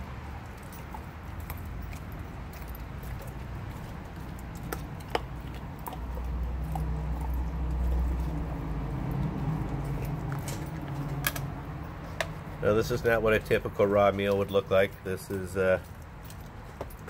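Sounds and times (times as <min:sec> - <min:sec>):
dog chewing a bone: 0:00.2 - 0:17.0
teeth cracking on bone: 0:01.4 - 0:11.5.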